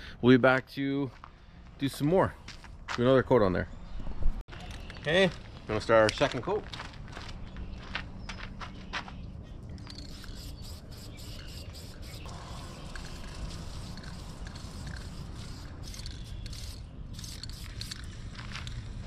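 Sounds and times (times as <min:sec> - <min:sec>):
spray-paint can hissing: 0:09.9 - 0:19.0.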